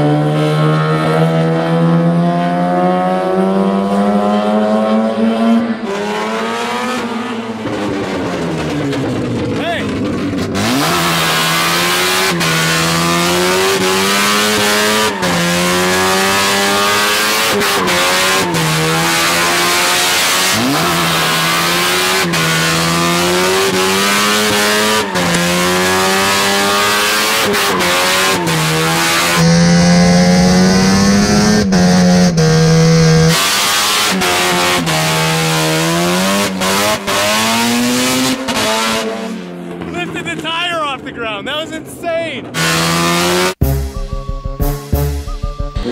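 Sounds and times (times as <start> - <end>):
rotary engine revving high: 0.0 - 40.4, 42.4 - 45.9
tire squeal: 13.8 - 34.2.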